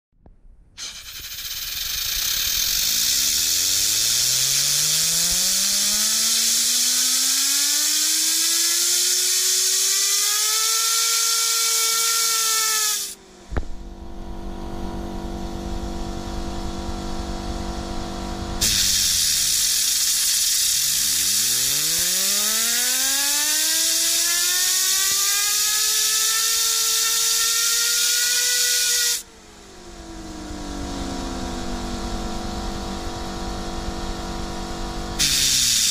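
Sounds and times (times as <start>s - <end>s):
compressed air hissing: 0.8s - 13.2s, 18.6s - 24.2s, 35.2s - 35.9s
fidget spinner whining: 0.8s - 13.2s, 18.6s - 29.2s.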